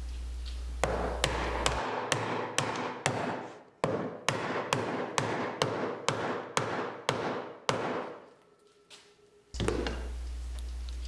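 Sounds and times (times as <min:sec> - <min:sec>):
wooden mallet striking wood: 0:00.8 - 0:08.2.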